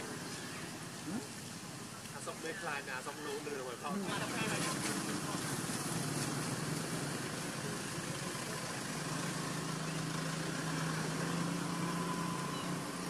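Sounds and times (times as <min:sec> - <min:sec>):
low motor hum: 0:03.8 - 0:13.0.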